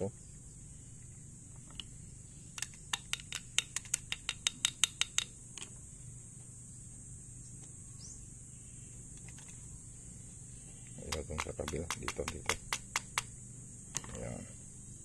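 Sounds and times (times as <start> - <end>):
steady high hiss: 0.0 - 15.0
sharp metallic clicks: 2.6 - 5.7, 11.0 - 13.3.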